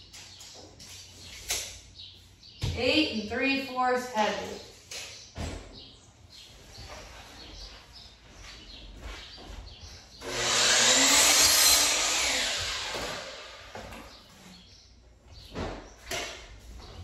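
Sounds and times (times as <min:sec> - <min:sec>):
electric power tool running: 0:10.2 - 0:13.8.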